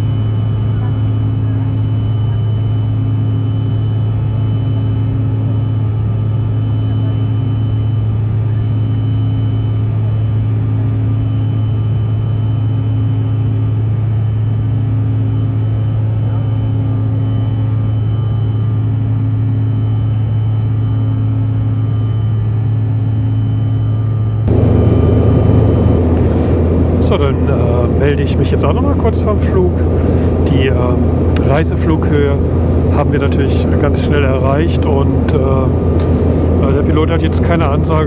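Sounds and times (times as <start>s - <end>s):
jet cabin drone: 0.0s - 38.0s.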